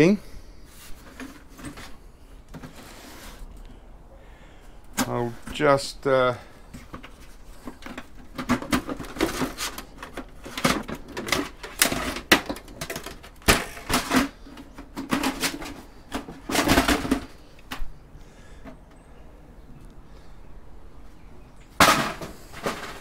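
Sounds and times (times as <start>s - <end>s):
metal computer case clattering: 7.0s - 17.4s, 21.8s - 23.0s.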